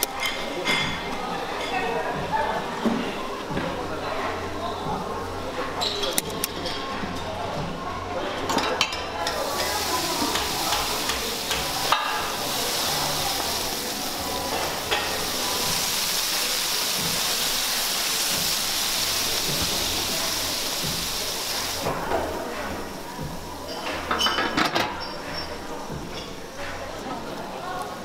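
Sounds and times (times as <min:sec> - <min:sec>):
water sizzling on hot griddle: 0:09.2 - 0:26.2.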